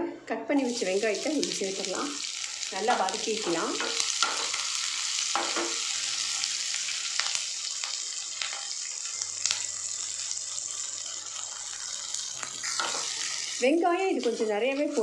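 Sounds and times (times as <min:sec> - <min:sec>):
onions sizzling in hot oil: 0:00.6 - 0:15.0.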